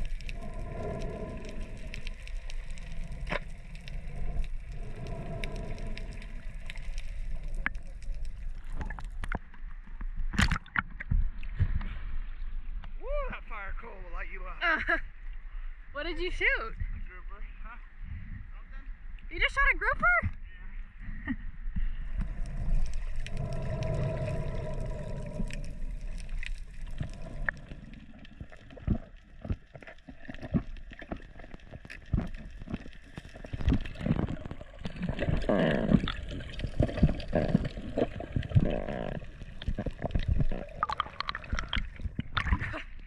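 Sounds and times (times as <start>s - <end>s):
low rumble: 0.0s - 10.2s, 20.3s - 29.6s
underwater gurgling bubbles: 0.0s - 12.1s, 22.0s - 43.0s.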